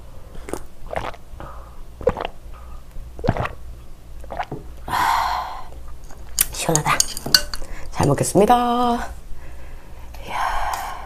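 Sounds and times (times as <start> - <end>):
swallowing gulps: 0.4 - 2.6, 3.2 - 3.6, 4.2 - 4.9
breathy rush of noise: 9.3 - 11.0.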